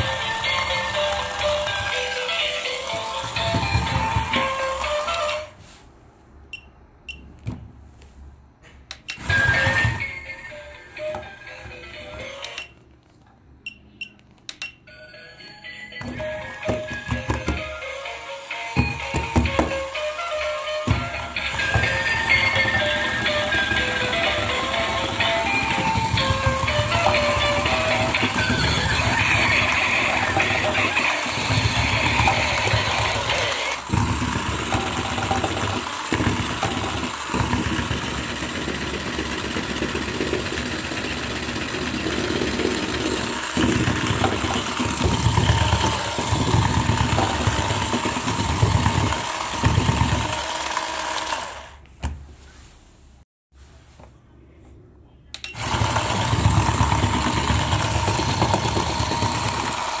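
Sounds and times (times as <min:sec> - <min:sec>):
toy electric motor and gears whirring: 0:00.0 - 0:05.6, 0:16.2 - 0:51.8, 0:55.5 - 1:00.0.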